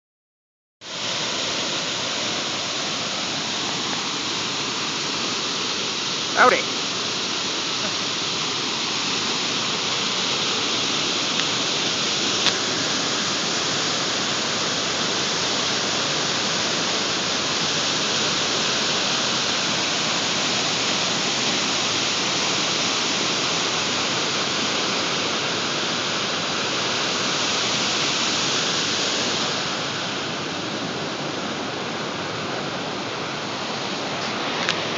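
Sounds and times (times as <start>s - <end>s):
waterfall pouring: 0.9s - 30.8s.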